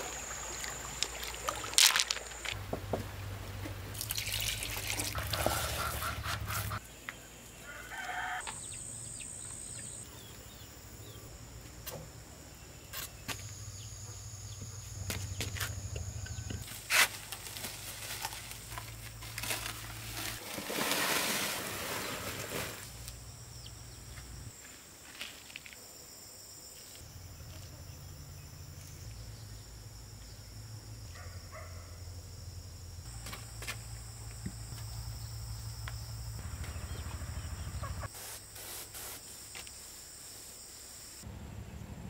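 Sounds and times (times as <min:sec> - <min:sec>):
soil broken up by hand: 0:00.9 - 0:02.6
chickens clucking: 0:05.2 - 0:06.8, 0:37.7 - 0:38.1
cement mix poured into basin: 0:19.4 - 0:22.8.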